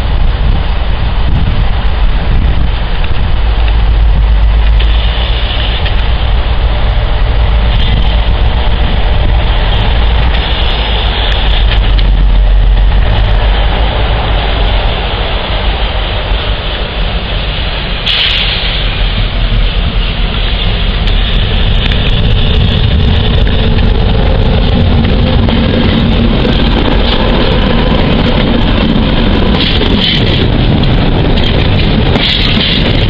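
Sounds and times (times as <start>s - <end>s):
diesel locomotive engine drone: 0.0s - 33.0s
brief hiss: 18.0s - 19.2s.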